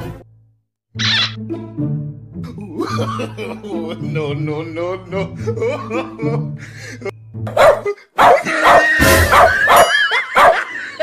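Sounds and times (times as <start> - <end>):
background music: 0.0 - 11.0
dog barking from a speaker: 7.5 - 10.7.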